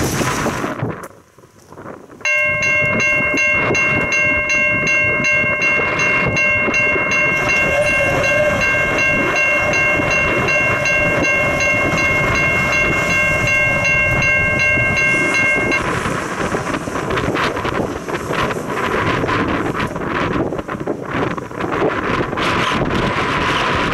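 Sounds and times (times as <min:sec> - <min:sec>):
wind: 0:00.0 - 0:23.9
train rumble: 0:01.8 - 0:23.9
locomotive air horn blast: 0:07.3 - 0:13.1.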